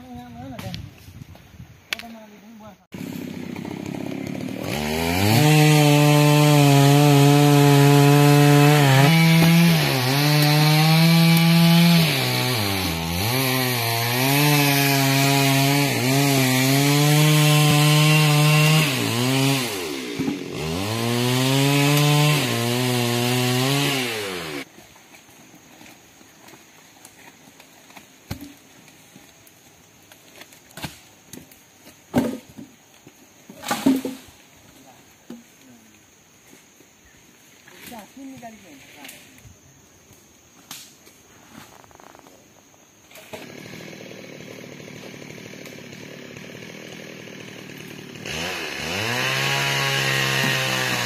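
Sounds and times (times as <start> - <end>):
chainsaw cutting wood: 3.0 - 24.7, 43.0 - 51.0.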